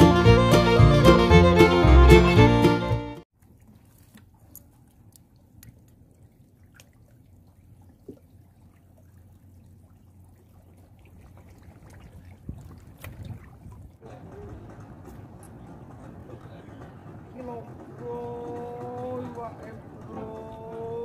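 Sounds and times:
water drips and trickles: 3.4s - 14.0s
low steady rumble: 3.5s - 21.0s.

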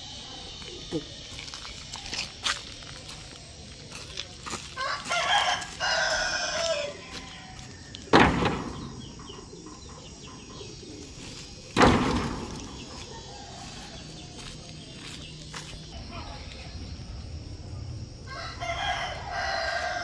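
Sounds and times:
rooster crowing: 4.6s - 9.0s, 12.4s - 14.6s, 18.2s - 20.0s
heavy thuds: 8.1s - 10.2s, 11.5s - 13.2s.

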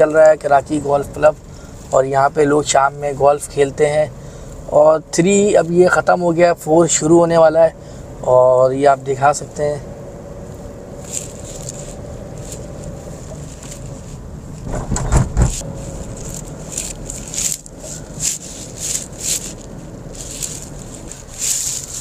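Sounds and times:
car road and engine noise: 0.0s - 22.0s
louder rumble: 12.0s - 22.0s.

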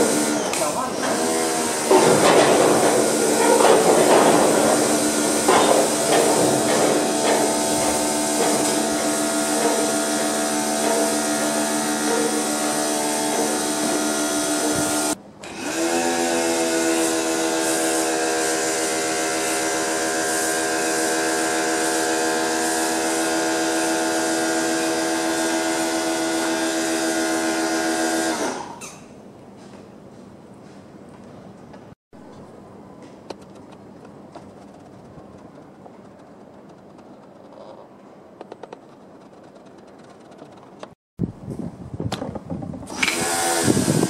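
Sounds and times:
pressure washer motor whining: 0.0s - 28.8s, 42.9s - 44.0s.

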